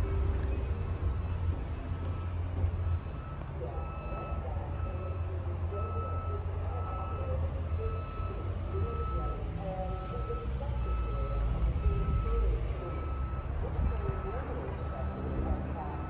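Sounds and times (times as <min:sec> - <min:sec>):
faint wavering chirps: 0:00.0 - 0:16.0
steady low rumble: 0:06.6 - 0:16.0.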